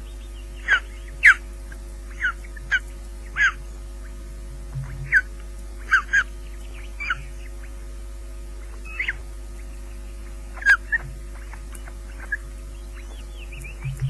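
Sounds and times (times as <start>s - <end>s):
steady electrical hum: 0.0s - 14.0s
osprey whistled calls: 0.1s - 1.4s, 2.1s - 3.7s, 5.0s - 7.8s, 8.6s - 9.7s, 10.6s - 14.0s.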